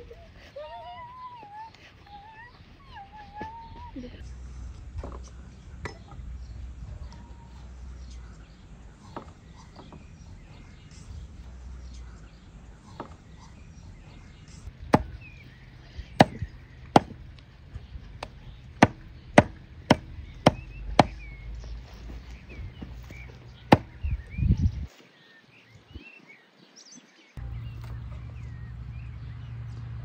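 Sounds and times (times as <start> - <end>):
birds chirping faintly: 0.0 - 30.0
cleaver chopping on wooden block: 14.9 - 15.2, 16.2 - 16.4, 17.0 - 17.2, 18.8 - 21.2, 23.7 - 23.9.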